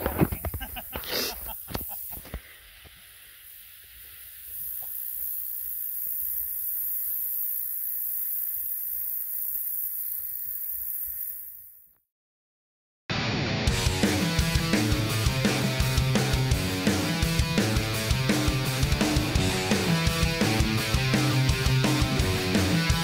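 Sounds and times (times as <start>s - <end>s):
high-pitched hiss: 0.0s - 12.0s.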